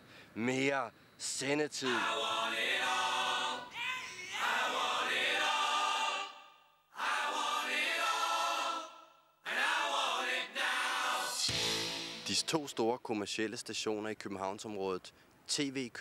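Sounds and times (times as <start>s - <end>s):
choir singing: 1.8s - 12.2s.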